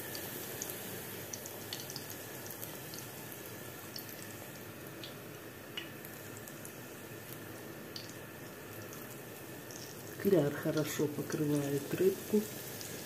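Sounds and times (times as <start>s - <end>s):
fish frying in hot oil: 0.0s - 13.0s
small crackles and pops: 0.1s - 3.1s, 5.0s - 12.1s.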